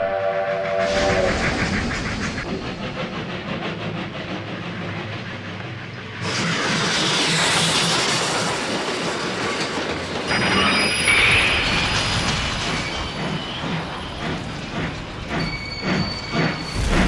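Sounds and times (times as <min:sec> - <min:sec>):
train wheels clattering: 0:00.8 - 0:17.0
high squealing tones: 0:10.3 - 0:14.6.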